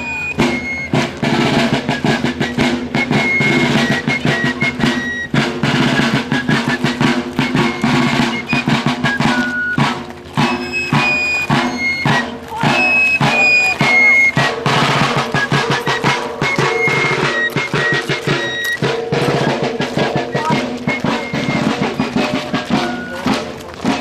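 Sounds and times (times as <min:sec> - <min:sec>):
field drum rolls: 0:00.0 - 0:24.0.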